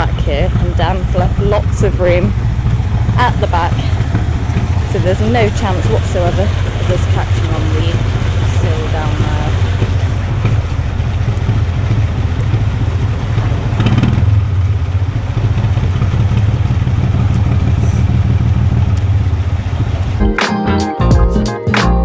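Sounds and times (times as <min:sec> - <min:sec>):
water rushing: 0:00.0 - 0:20.3
diesel engine running: 0:00.0 - 0:21.5
music: 0:20.2 - 0:22.0.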